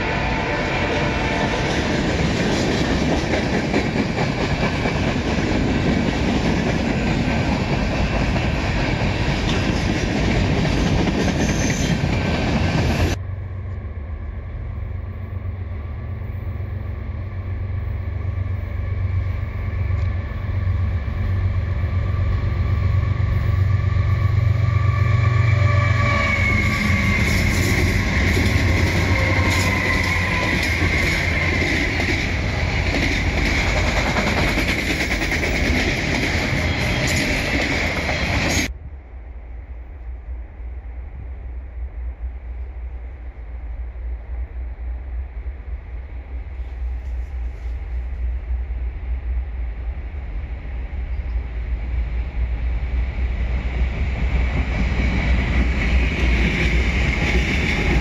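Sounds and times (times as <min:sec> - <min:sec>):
diesel locomotive rumble: 0:00.0 - 0:39.1
train wheels clickety-clack: 0:01.2 - 0:13.2, 0:25.8 - 0:38.7, 0:53.4 - 0:58.0.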